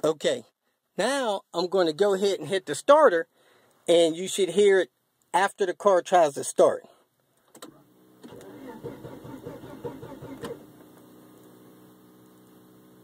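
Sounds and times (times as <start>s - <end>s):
fuel pump humming: 7.9s - 13.0s
engine cranking without starting: 8.2s - 10.8s.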